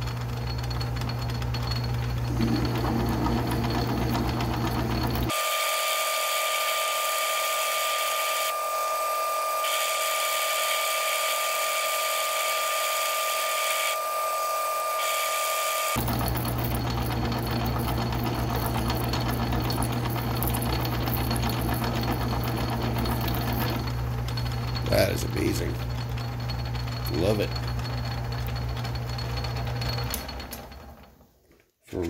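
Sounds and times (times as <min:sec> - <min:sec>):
low motor hum: 0:00.0 - 0:05.3, 0:16.0 - 0:31.1
metal lathe whining: 0:00.2 - 0:31.1.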